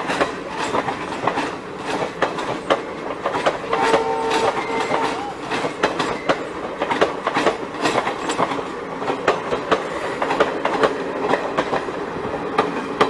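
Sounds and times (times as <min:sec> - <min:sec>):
train rumble: 0:00.0 - 0:13.0
train wheels clattering over rail joints: 0:00.0 - 0:13.0.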